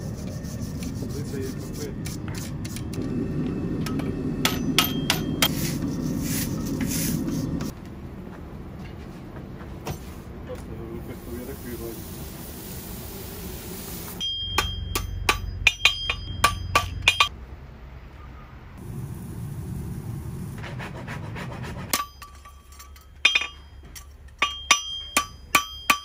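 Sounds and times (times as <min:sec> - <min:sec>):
hammer striking horseshoe on anvil: 0:03.8 - 0:05.6, 0:14.2 - 0:17.4, 0:21.9 - 0:26.0.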